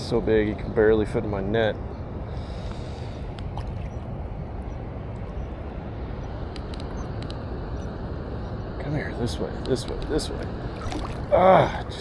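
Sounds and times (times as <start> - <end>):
wind rumble on microphone: 0.0 - 12.0
faint clicks: 6.5 - 7.4
creek water rushing: 10.5 - 12.0.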